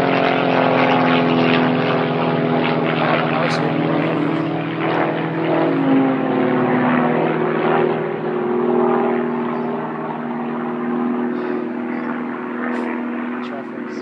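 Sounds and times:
propeller aircraft droning overhead: 0.0 - 14.0.

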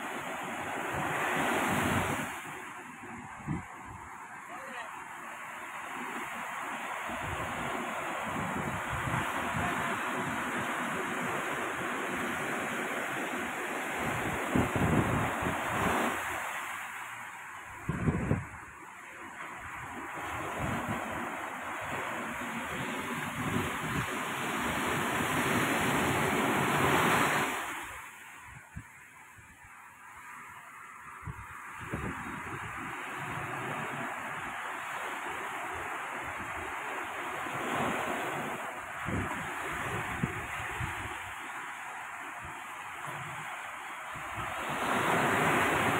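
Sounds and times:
wind buffeting microphone: 0.0 - 4.2, 7.0 - 13.3, 13.9 - 16.4, 17.7 - 18.8, 19.6 - 27.9, 31.2 - 35.0, 37.5 - 41.4
surf washing up a sandy beach: 0.0 - 45.9.

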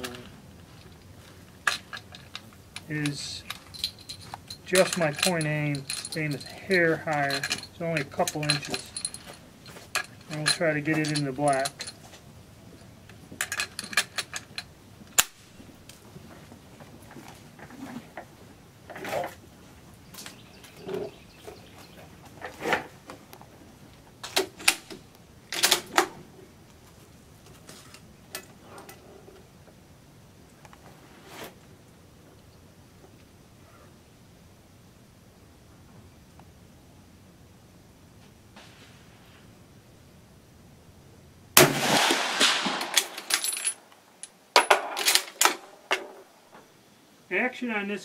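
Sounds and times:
metal clink: 1.7 - 12.0, 41.8 - 45.6
rifle bolt metallic clicks: 13.4 - 15.4
rifle shot: 41.6 - 43.3.

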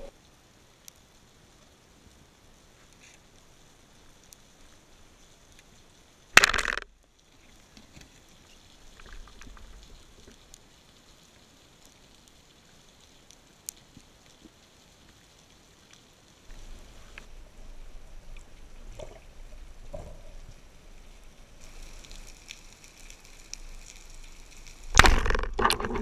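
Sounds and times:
speargun firing underwater: 6.4 - 6.9, 24.9 - 26.0
small clicks: 21.6 - 26.0.

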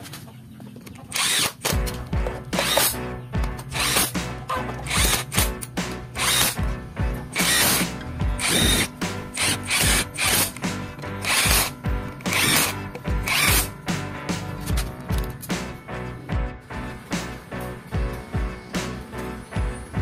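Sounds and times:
power drill bursts: 1.1 - 1.6, 3.8 - 4.1, 4.9 - 5.5, 6.2 - 6.6, 7.3 - 10.6, 11.2 - 11.7, 12.3 - 13.7
music with steady beat: 1.7 - 20.0.

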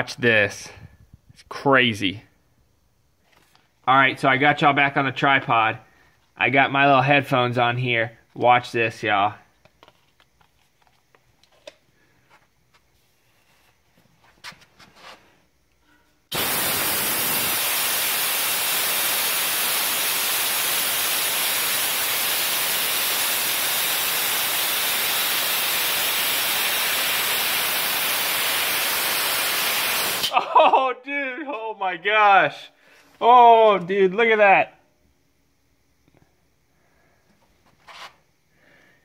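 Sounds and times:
compressed air hissing: 16.3 - 30.3.

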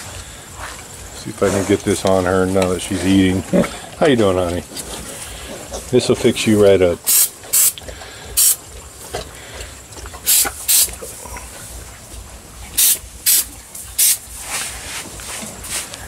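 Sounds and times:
aerosol spray hissing: 7.1 - 7.8, 8.4 - 8.6, 10.3 - 10.9, 12.8 - 14.2.

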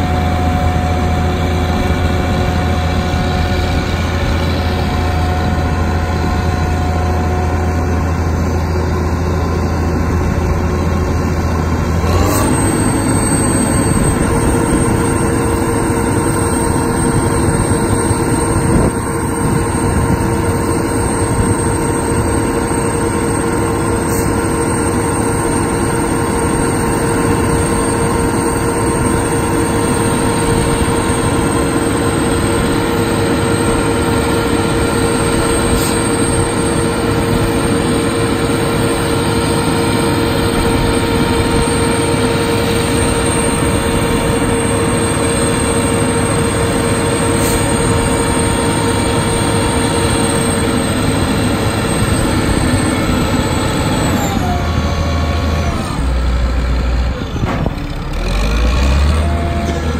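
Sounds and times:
heavy low rumble: 0.0 - 12.1
crane engine whining: 0.0 - 59.9.

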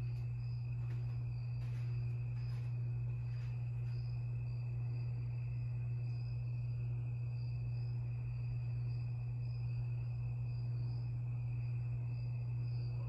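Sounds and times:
ceiling fan motor humming: 0.0 - 13.0.

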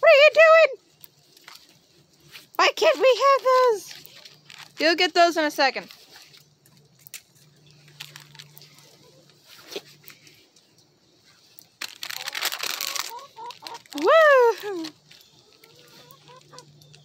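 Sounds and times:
crinkling handling noise: 0.1 - 17.0
chicken calls: 8.0 - 10.1, 11.8 - 17.0.

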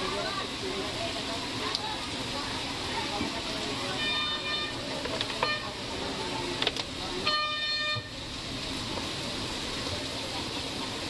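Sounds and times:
street traffic noise: 0.0 - 11.0
vehicle horn: 3.9 - 4.8, 5.4 - 5.8, 7.2 - 8.2.

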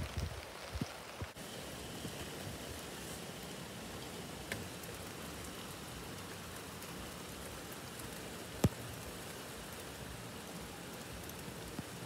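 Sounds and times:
rain falling: 0.0 - 12.0.

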